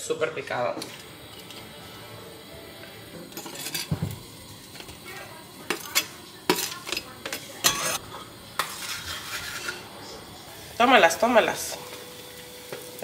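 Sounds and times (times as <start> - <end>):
food sizzling in a pan: 0.4 - 13.0
knife scraping cutting board: 8.6 - 9.9.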